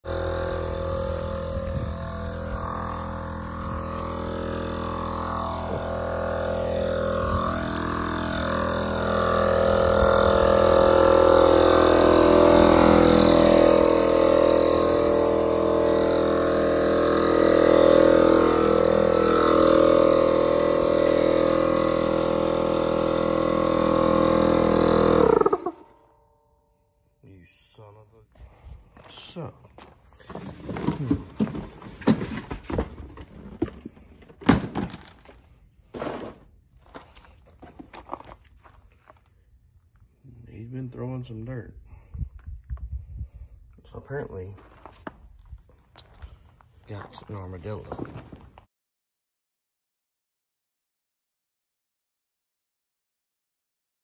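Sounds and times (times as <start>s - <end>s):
air compressor running: 0.0s - 26.1s, 30.1s - 39.1s, 41.8s - 42.3s.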